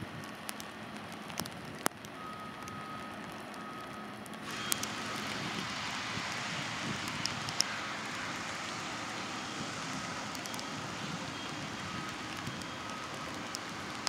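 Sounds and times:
locomotive idling hiss: 4.4 - 14.0.

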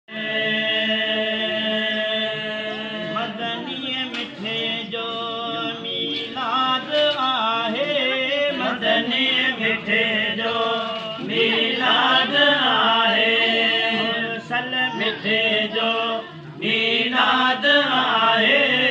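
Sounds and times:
men chanting devotional song: 0.1 - 18.9.

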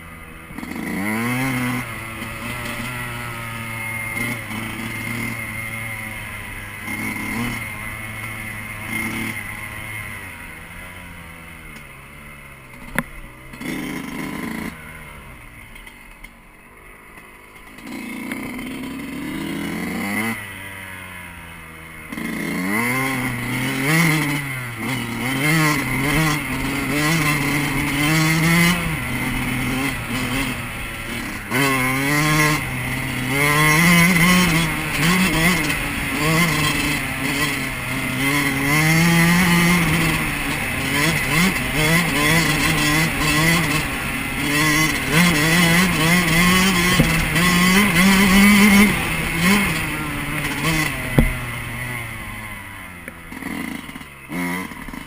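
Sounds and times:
two-stroke motorcycle engine revving: 0.0 - 55.0
sharp knock: 51.1 - 51.4.

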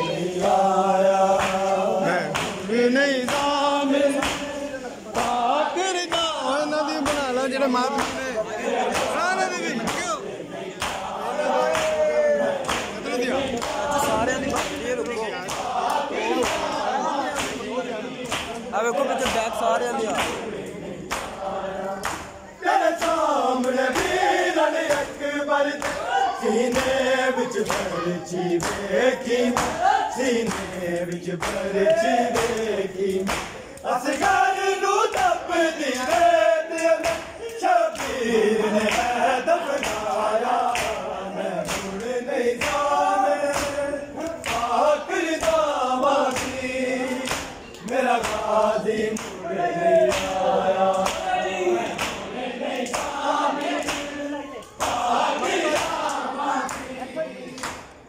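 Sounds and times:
men chanting in unison: 0.0 - 58.0
hands slapping chests: 1.3 - 5.5, 8.0 - 8.3, 8.9 - 9.2, 9.8 - 10.2, 10.8 - 18.6, 20.1 - 22.4, 23.0 - 24.2, 29.5 - 29.9, 30.5 - 34.4, 39.7 - 44.8, 45.4 - 49.4, 50.1 - 51.3, 51.9 - 56.9.

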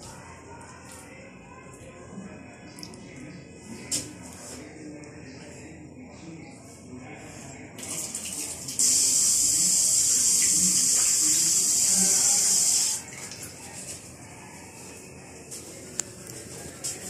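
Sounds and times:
tap water running into sink: 7.8 - 13.5.

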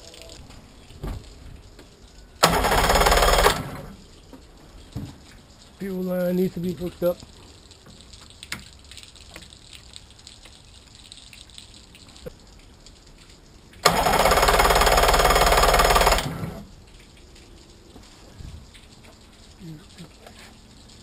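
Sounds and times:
outboard motor starter cranking: 2.4 - 4.0, 13.8 - 16.6.

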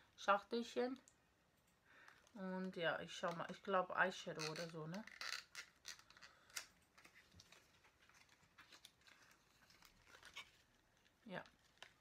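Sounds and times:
rustles of handling: 4.4 - 12.0.

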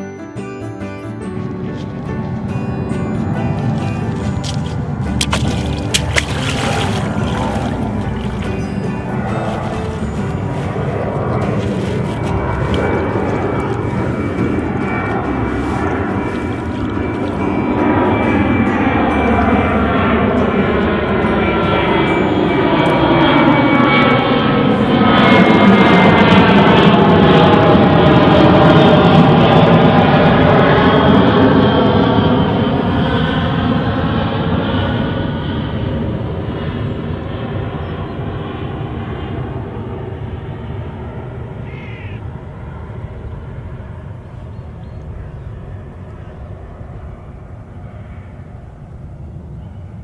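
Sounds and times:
aeroplane flying over: 0.0 - 50.0
airplane engine drone: 0.0 - 50.0
wind buffeting microphone: 2.8 - 34.1
bird call: 41.6 - 42.2.

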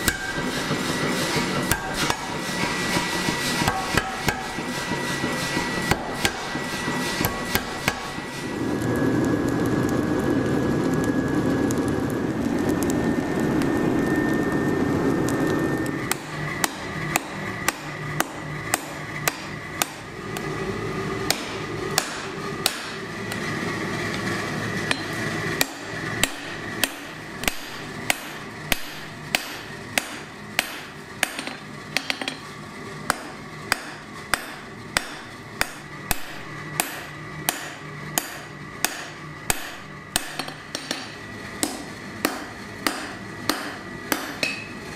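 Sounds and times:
hammer striking metal on anvil: 0.0 - 8.2, 16.1 - 20.1, 21.3 - 23.0, 24.9 - 32.4, 33.1 - 44.7
forge fire and air blast rushing: 0.0 - 31.2.

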